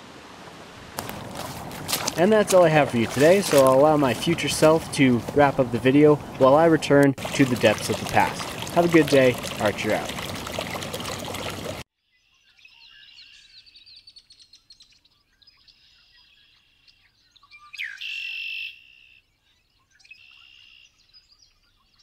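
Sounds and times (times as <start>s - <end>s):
stream running over rocks: 0.0s - 11.8s
birds chirping and trilling: 7.2s - 22.0s.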